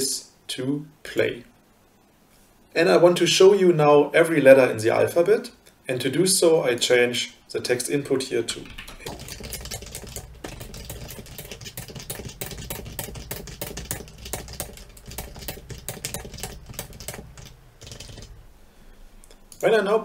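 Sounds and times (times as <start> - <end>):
rapid typing on computer keyboard: 8.5 - 18.5.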